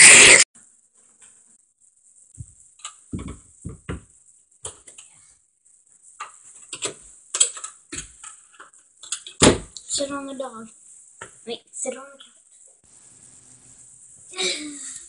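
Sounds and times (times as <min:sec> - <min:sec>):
phone handling thumps: 0:03.1 - 0:04.0.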